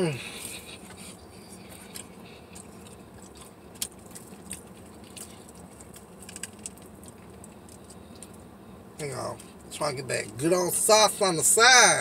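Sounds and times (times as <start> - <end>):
person chewing: 0.0 - 8.6
food packaging crinkling: 1.6 - 8.4.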